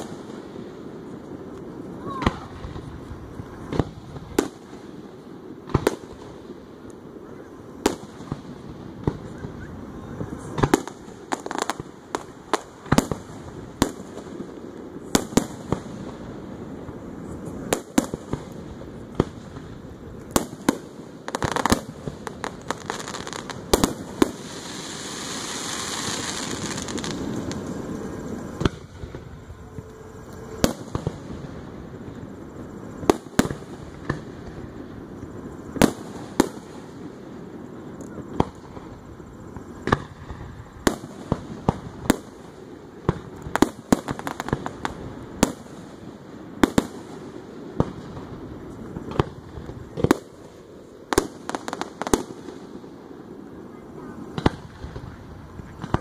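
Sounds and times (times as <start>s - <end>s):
continuous hissing: 0.0s - 56.0s
firework shells booming: 10.4s - 35.0s.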